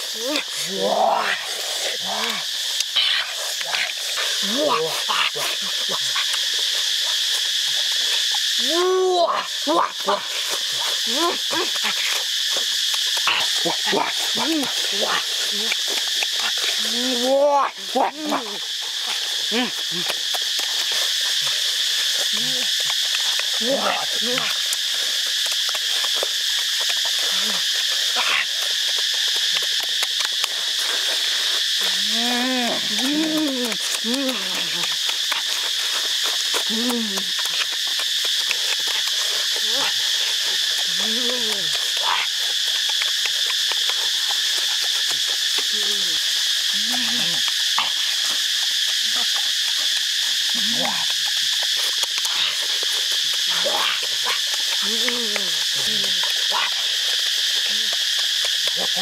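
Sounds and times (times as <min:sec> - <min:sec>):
wet chewing and lip-smacking: 0:00.0 - 0:08.7, 0:09.3 - 0:59.0
high-pitched insect chorus: 0:00.0 - 0:59.0
mouth clicks from eating: 0:00.1 - 0:17.3, 0:18.2 - 0:59.0
person humming: 0:32.0 - 0:34.9, 0:36.7 - 0:37.4.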